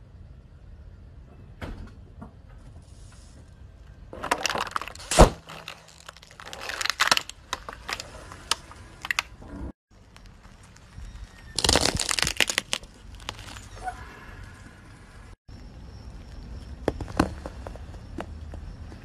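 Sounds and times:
car tyre rolling: 4.1s - 15.3s
plastic bottle crackling: 4.2s - 9.3s, 11.5s - 13.7s.

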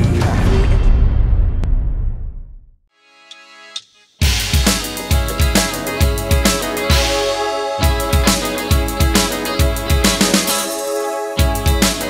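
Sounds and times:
band playing song intro: 3.2s - 12.0s
steady drum beat: 3.8s - 12.0s.

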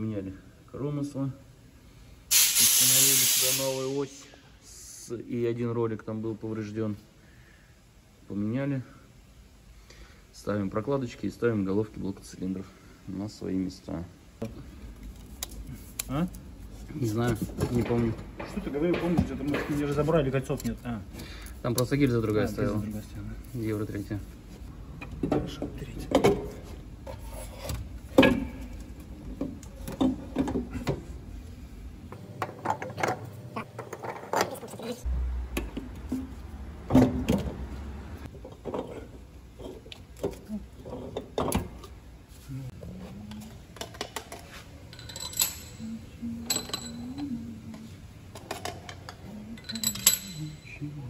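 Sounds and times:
metallic clinks of hand tools: 44.9s - 47.2s, 49.6s - 50.8s.

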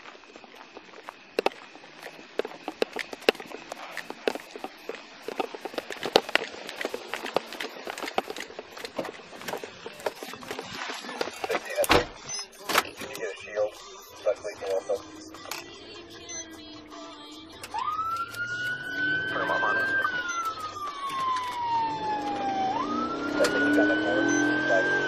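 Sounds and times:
footsteps: 0.0s - 12.2s
gear knocking against camera: 1.4s - 12.0s.

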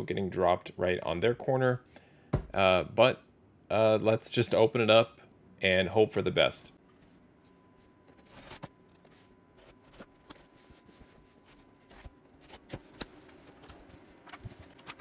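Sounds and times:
cardboard scraping and rustling: 8.1s - 15.0s
plastic wrap rustling: 8.1s - 15.0s.

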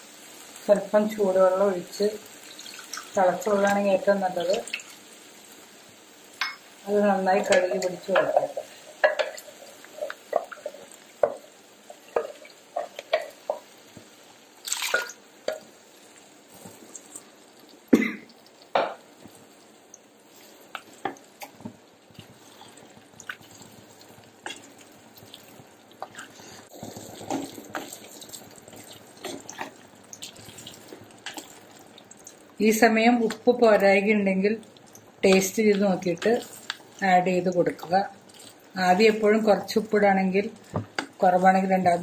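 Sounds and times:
water poured into a pan: 2.3s - 3.2s, 14.6s - 15.6s, 22.2s - 32.4s
spatula scraping a pan: 25.4s - 29.8s.

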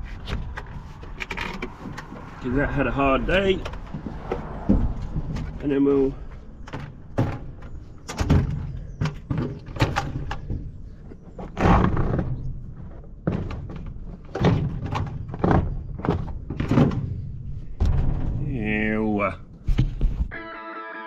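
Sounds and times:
sharp clunks and knocks: 6.6s - 10.7s, 11.4s - 18.7s.

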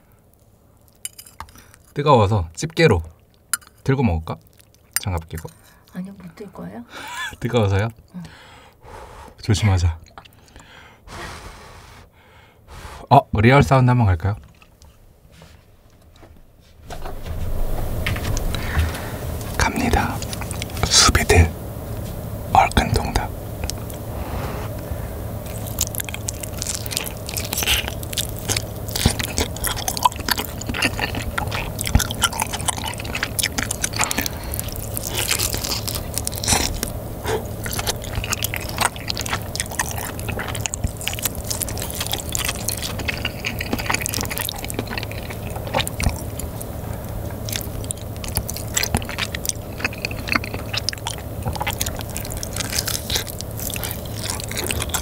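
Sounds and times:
close biting and chewing: 0.8s - 2.0s, 3.2s - 6.0s, 17.4s - 21.3s, 22.6s - 55.0s.

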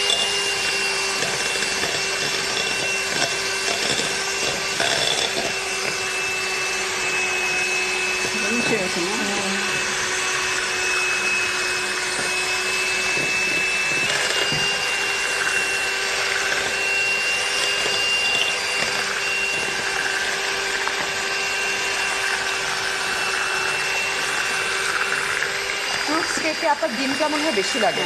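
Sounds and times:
electric hand mixer whining: 0.0s - 28.0s.

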